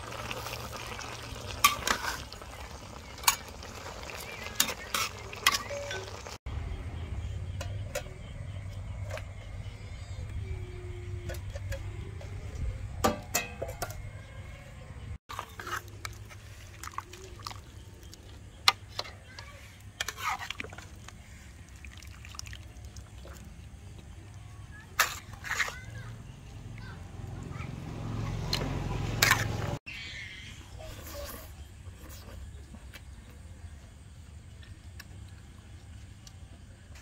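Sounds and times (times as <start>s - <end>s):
metal ladle scraping a wok: 1.4s - 6.4s, 15.3s - 16.5s, 20.0s - 21.0s, 29.0s - 29.8s, 30.8s - 32.3s.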